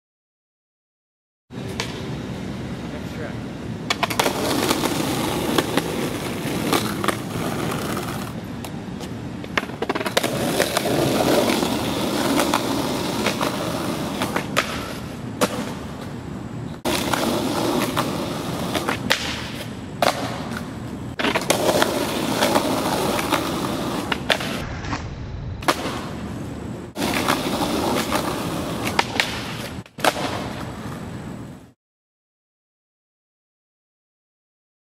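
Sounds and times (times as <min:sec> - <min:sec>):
skateboard wheels rolling on concrete: 0:01.5 - 0:31.8
skateboard popping and landing: 0:01.7 - 0:02.1, 0:03.9 - 0:25.0, 0:25.6 - 0:31.2.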